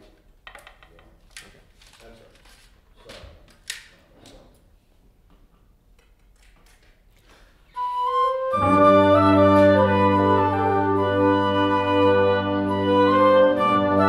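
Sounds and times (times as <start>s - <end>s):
instrumental ensemble playing: 7.7s - 14.0s.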